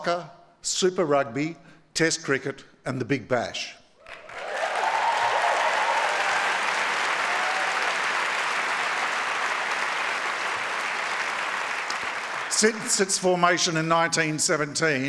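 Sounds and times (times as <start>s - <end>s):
audience applauding: 4.0s - 13.2s.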